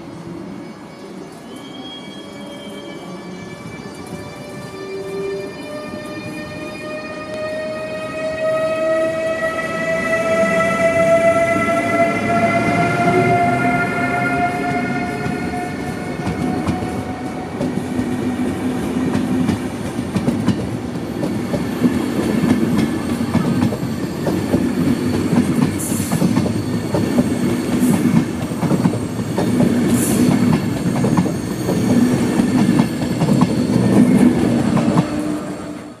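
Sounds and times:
electric locomotive whine: 0:00.0 - 0:36.0
high wheel squeals: 0:00.6 - 0:09.1
train wheels rumbling and clicking: 0:14.7 - 0:35.4.

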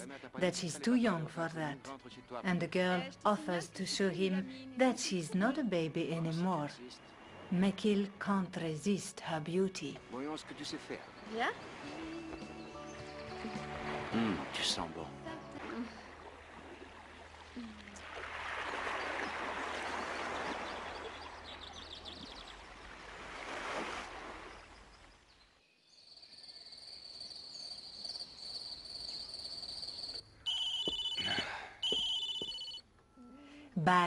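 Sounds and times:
insect chirring: 0:25.9 - 0:32.8
pulsing high chirps: 0:27.2 - 0:32.8.

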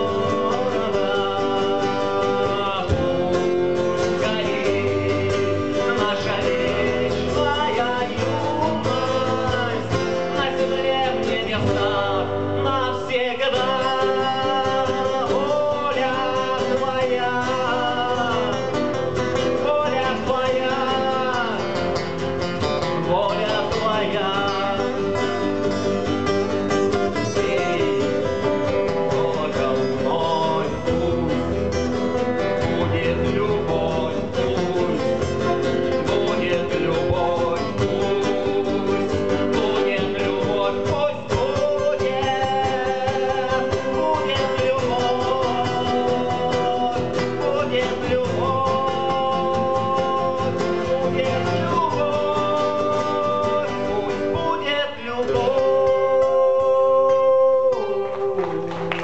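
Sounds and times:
acoustic guitars strummed and picked: 0:00.0 - 0:59.0
man singing: 0:00.0 - 0:59.0.

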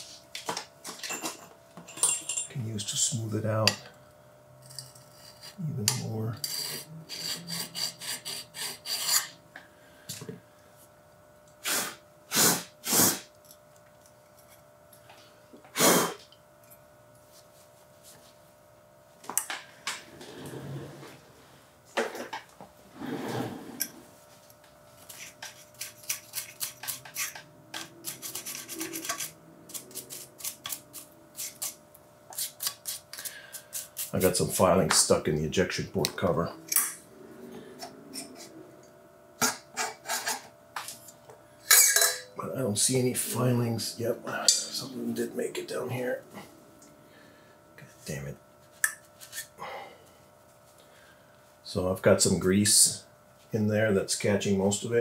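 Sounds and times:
stone rubbing on aluminium: 0:06.4 - 0:09.4, 0:25.1 - 0:33.0.

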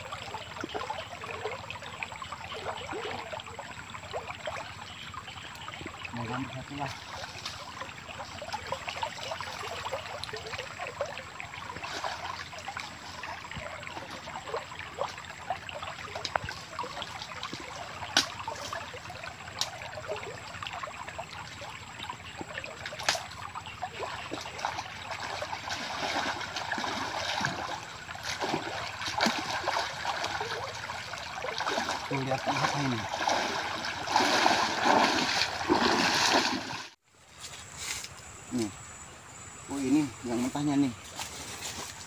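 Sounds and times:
person wading through water: 0:00.0 - 0:37.0
river water rushing: 0:24.7 - 0:37.0.

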